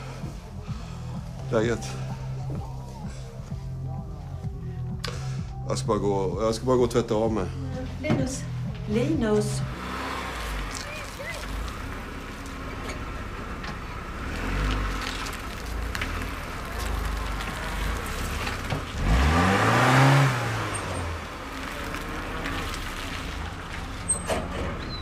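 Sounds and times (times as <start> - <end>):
car passing by: 7.9 - 25.0.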